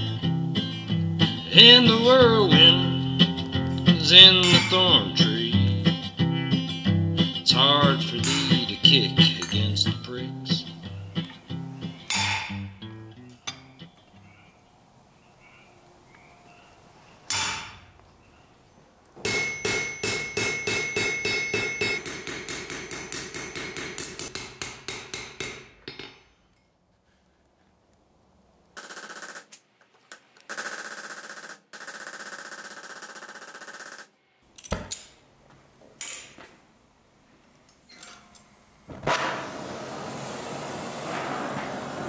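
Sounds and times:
hammer striking steel on anvil: 4.4 - 5.0, 8.2 - 8.8, 12.1 - 12.7, 17.3 - 17.9, 19.2 - 26.4.

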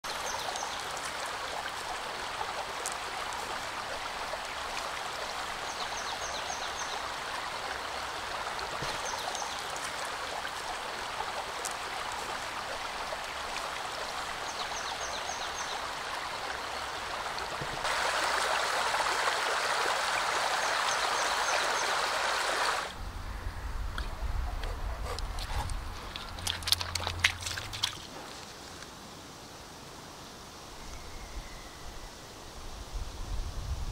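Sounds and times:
river rushing over gravel: 0.1 - 23.0, 25.8 - 30.0.

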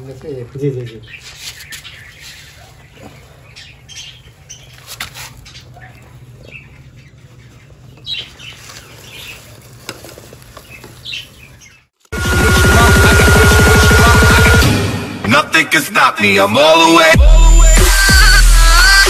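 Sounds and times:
snake rustling and scraping: 1.2 - 3.4, 4.2 - 12.0.

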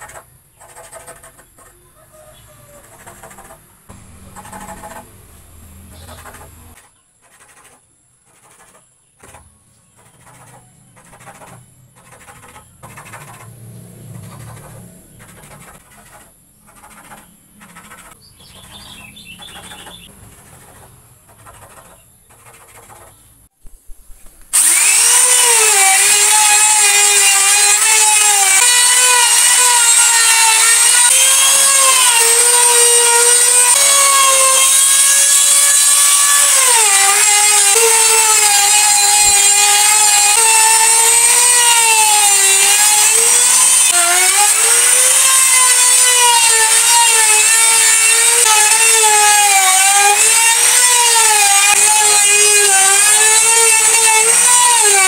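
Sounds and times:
power tool cutting wood: 24.5 - 55.0.

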